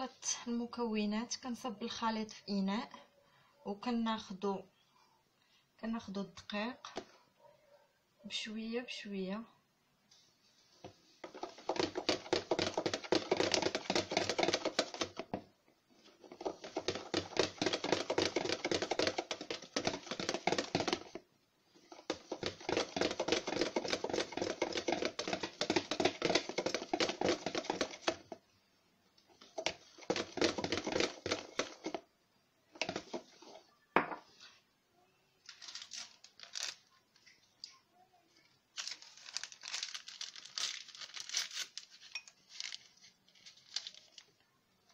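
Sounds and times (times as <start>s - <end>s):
whisk beating in plastic bowl: 11.2s - 15.4s, 16.0s - 21.2s, 21.8s - 28.4s, 29.4s - 32.1s, 32.8s - 33.6s
paper sachets rustling: 35.5s - 36.9s, 38.7s - 44.4s.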